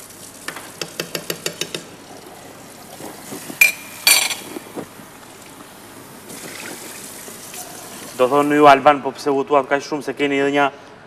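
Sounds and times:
kitchenware clattering: 3.4 - 4.6.

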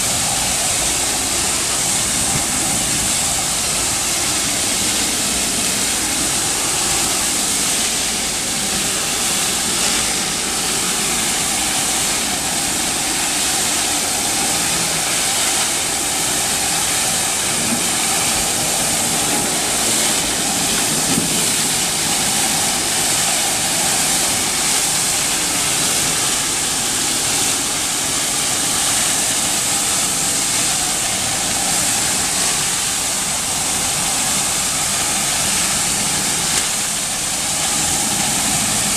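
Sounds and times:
tile cleaning machine hissing: 0.0 - 38.9.

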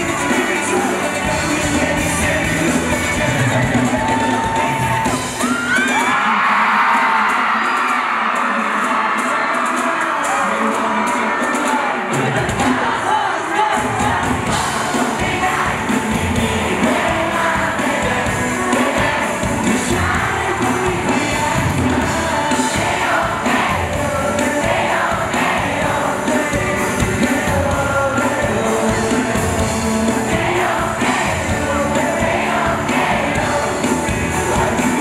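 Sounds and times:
men singing into microphones: 0.0 - 5.0, 6.1 - 35.0
crowd noise: 0.0 - 35.0
loud pop accompaniment: 13.6 - 35.0.

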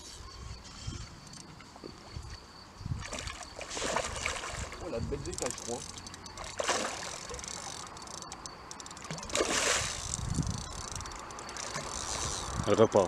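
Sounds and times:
water splashing: 3.0 - 12.8.

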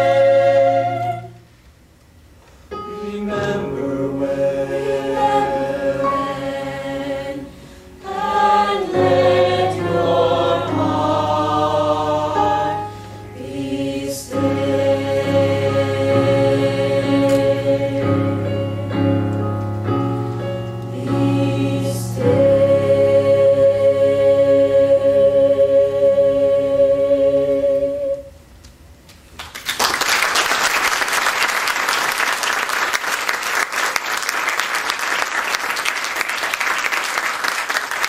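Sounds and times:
mixed choir singing: 0.0 - 1.4, 2.9 - 19.2, 20.9 - 28.3
audience applause: 29.4 - 38.0.

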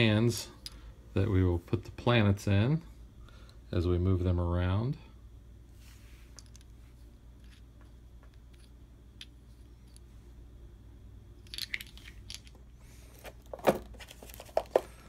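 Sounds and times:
plastic pieces clacking: 11.5 - 12.6.

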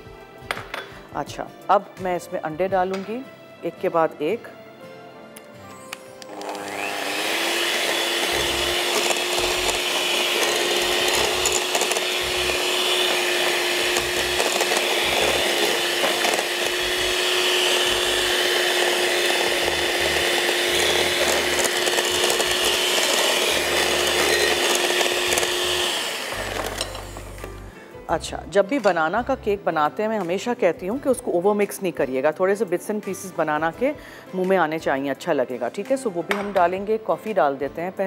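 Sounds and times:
electric mixer running: 6.2 - 27.8.

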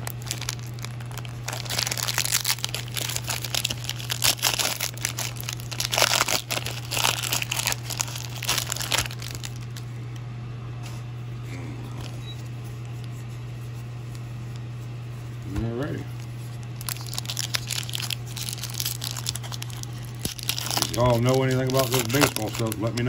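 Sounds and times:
plastic wrapping crinkling and tearing: 0.0 - 9.9, 16.0 - 23.0
low hum: 0.0 - 23.0.

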